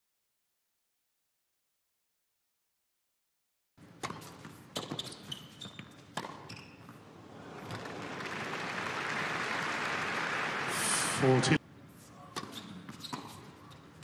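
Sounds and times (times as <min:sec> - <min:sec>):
shoe squeaks: 0:04.0 - 0:07.0, 0:12.0 - 0:14.0
tennis ball bouncing on hard court: 0:04.0 - 0:07.0, 0:12.3 - 0:13.6.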